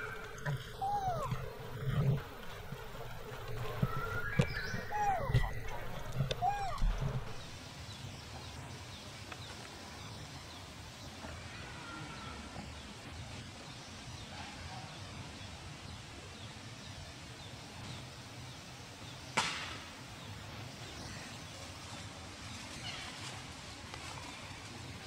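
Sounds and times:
faint bird chirps: 0:00.0 - 0:07.6
faint drawn-out call: 0:00.0 - 0:07.6.

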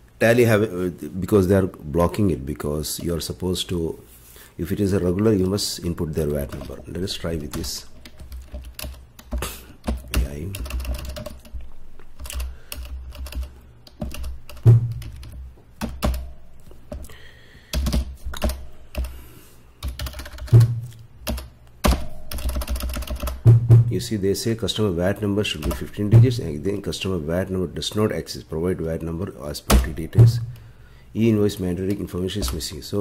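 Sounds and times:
typing on computer keyboard: 0:07.5 - 0:11.6, 0:12.2 - 0:16.2, 0:17.7 - 0:19.2, 0:19.8 - 0:23.4.

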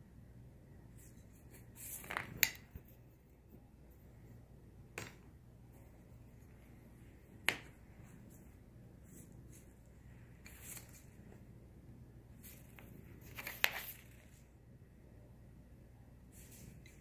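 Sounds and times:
pencil tapping on tabletop: 0:07.4 - 0:07.8.

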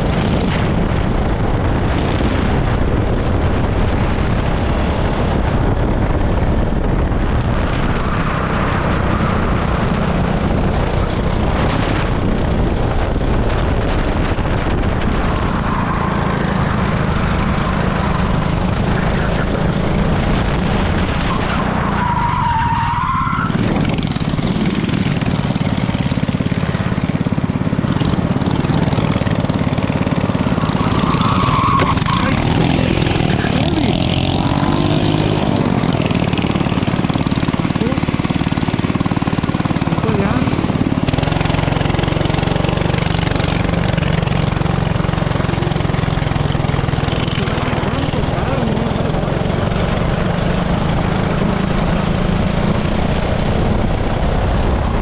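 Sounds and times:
kart engine running hard: 0:00.0 - 0:55.0
tyres squealing: 0:30.2 - 0:34.3.

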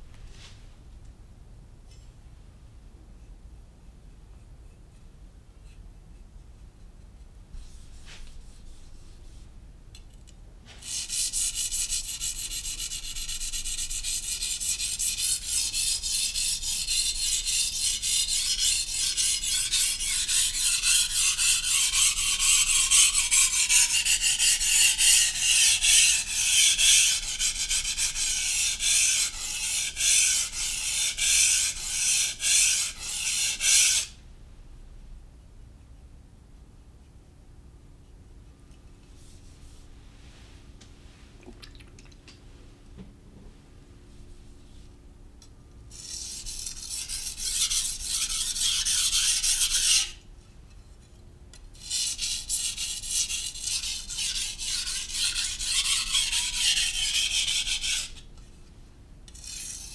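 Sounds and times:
knife scraping on whetstone: 0:10.7 - 0:34.1, 0:45.9 - 0:50.1, 0:51.8 - 0:58.3, 0:59.3 - 0:59.9.

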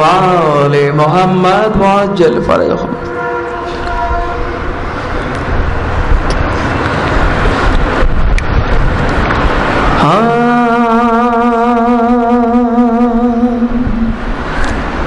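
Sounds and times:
man chanting held note: 0:00.0 - 0:04.4, 0:10.0 - 0:14.2.

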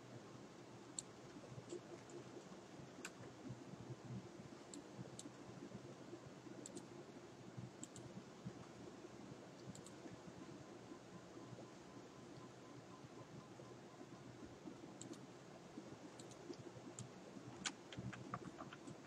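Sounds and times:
low room hum: 0:00.0 - 0:19.0
mouse and keyboard clicks: 0:09.6 - 0:10.0, 0:16.2 - 0:19.0.

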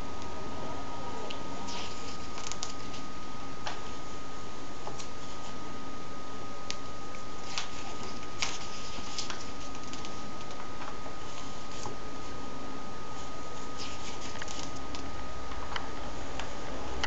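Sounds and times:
thin constant whine: 0:00.0 - 0:17.0
paper pages crackling: 0:01.7 - 0:03.1, 0:07.4 - 0:12.0, 0:13.2 - 0:15.1.

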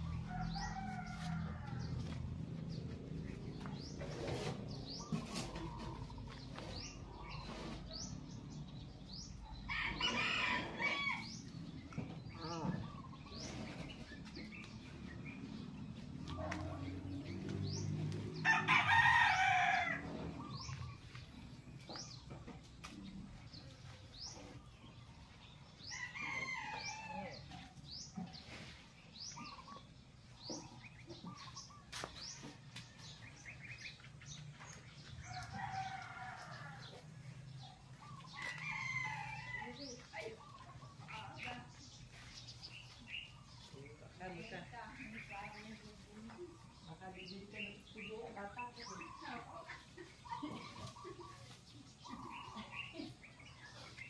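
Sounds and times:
roosters crowing: 0:00.0 - 0:08.1, 0:08.7 - 0:15.6, 0:16.2 - 0:21.2, 0:24.2 - 0:41.9, 0:48.8 - 0:54.0
small birds chirping: 0:00.0 - 0:54.0.

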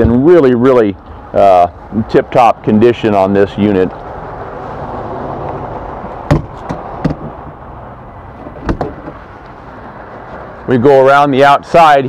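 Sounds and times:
outdoor background rumble: 0:00.0 - 0:12.0
sharp knocks: 0:06.3 - 0:07.5, 0:08.5 - 0:09.2.

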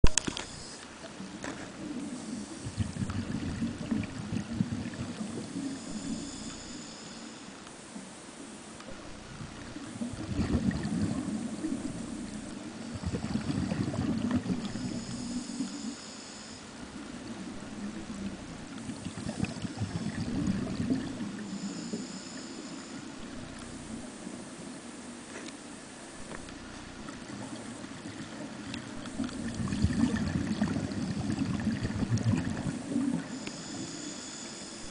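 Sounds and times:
underwater exhaust bubbles: 0:00.0 - 0:06.9, 0:07.6 - 0:34.9
air bubbling underwater: 0:10.0 - 0:12.0, 0:29.1 - 0:33.2
faint high whistle: 0:21.5 - 0:23.0, 0:33.3 - 0:34.9.

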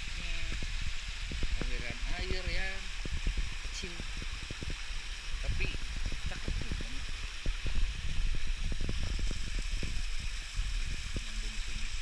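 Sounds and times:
small waterfall rushing: 0:00.0 - 0:12.0
low thumps and knocks: 0:03.0 - 0:11.2.

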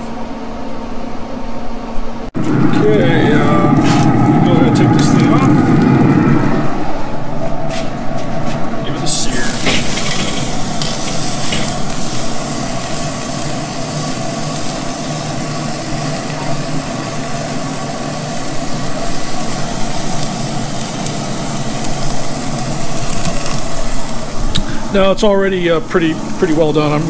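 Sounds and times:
low hum: 0:00.0 - 0:25.0
meat sizzling on grill: 0:02.5 - 0:05.9, 0:09.1 - 0:27.0.

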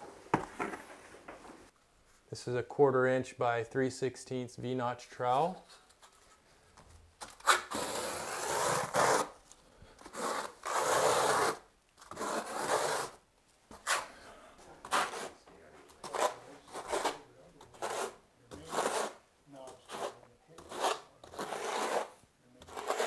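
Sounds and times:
trowel scraping mortar: 0:07.4 - 0:09.4, 0:10.0 - 0:14.1, 0:14.8 - 0:23.0.

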